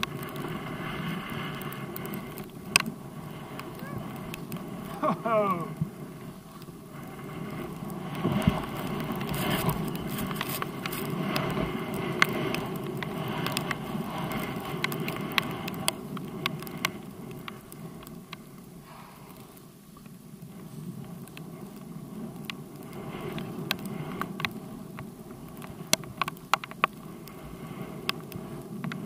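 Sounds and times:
sharp ticks: 0.0s - 5.0s
skis swishing through powder snow: 0.0s - 29.0s.

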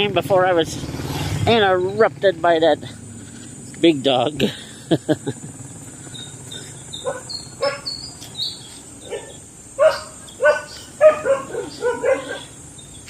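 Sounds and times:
dog barking: 7.0s - 7.9s, 9.0s - 12.6s.

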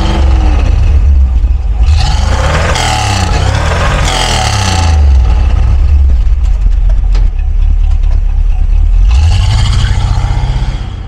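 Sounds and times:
engine revving: 0.0s - 6.4s, 8.7s - 11.0s
car engine idling: 0.0s - 10.4s.

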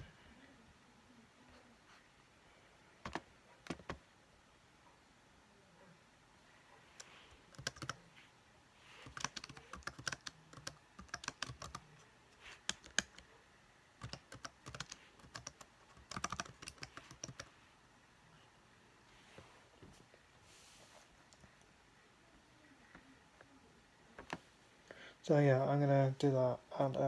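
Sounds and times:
computer keyboard typing: 3.0s - 4.0s, 7.0s - 8.0s, 9.0s - 12.0s, 12.6s - 13.2s, 14.0s - 17.5s.

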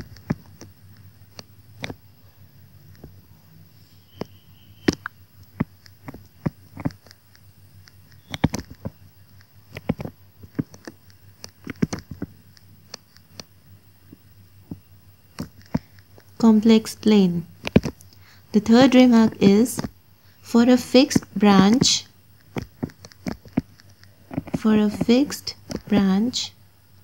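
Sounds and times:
stylus tapping on tablet screen: 7.8s - 13.5s, 14.1s - 20.0s, 20.6s - 26.4s.

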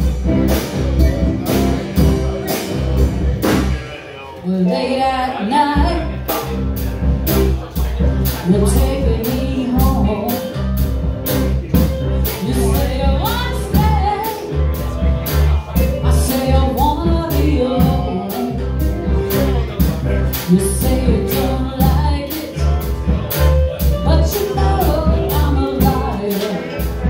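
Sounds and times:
steady drum beat: 0.0s - 4.1s, 5.8s - 27.0s
person singing: 8.0s - 10.8s, 11.7s - 27.0s.

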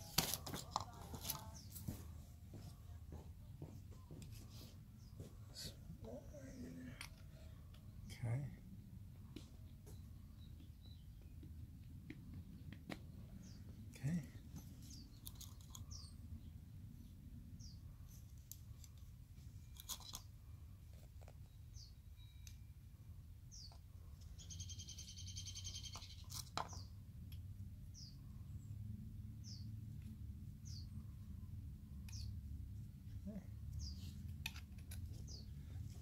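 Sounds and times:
bird chirping: 9.4s - 18.9s, 21.2s - 22.7s, 23.4s - 27.0s, 27.8s - 32.6s, 33.2s - 36.0s.

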